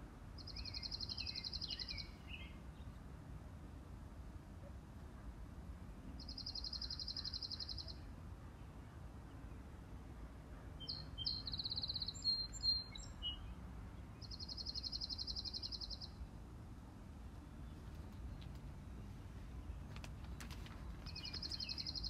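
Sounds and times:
songbird trill: 0.4 - 3.0, 6.1 - 8.1, 10.8 - 16.3, 19.1 - 22.0
varied birdsong: 0.4 - 3.1, 6.0 - 10.0, 10.7 - 16.3, 17.2 - 22.0.

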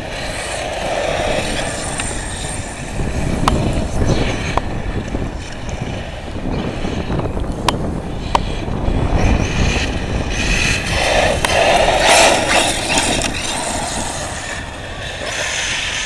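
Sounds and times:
rc buggy motor and tyres: 0.0 - 16.0.

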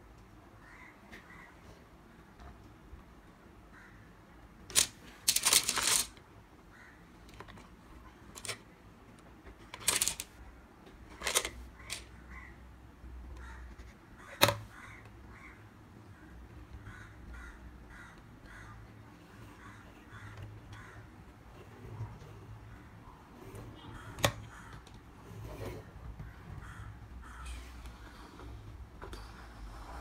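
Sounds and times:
plastic blocks clattering on wood: 4.7 - 6.2, 9.8 - 10.3.

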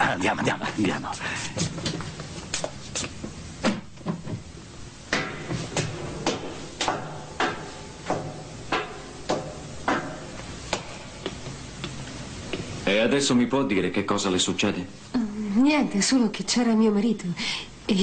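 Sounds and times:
footsteps on metal stairs: 5.1 - 12.7.

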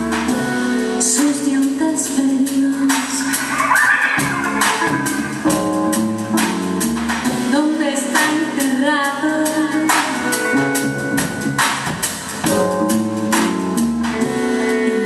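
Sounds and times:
bass: 0.0 - 15.0
drum kit beat: 0.0 - 15.0
electric guitar: 2.6 - 15.0
keyboard chords: 3.2 - 8.4.

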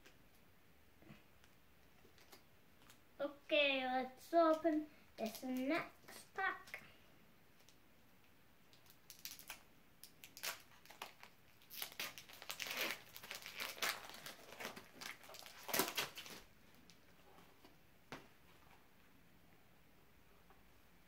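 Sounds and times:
foil wrapper tearing and crinkling: 8.8 - 16.5.

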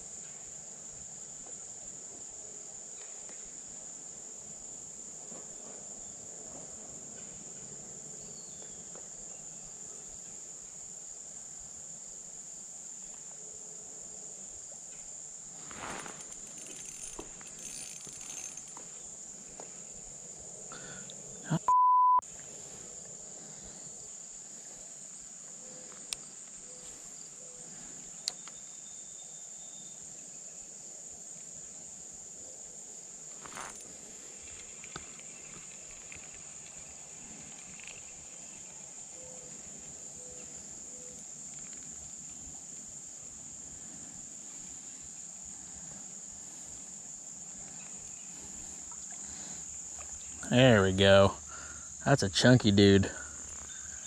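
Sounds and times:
high-pitched insect chorus: 0.0 - 21.6, 22.2 - 54.0
faint clicks and rustles: 14.9 - 19.8, 33.3 - 43.8
short steady beep: 21.5 - 22.2.

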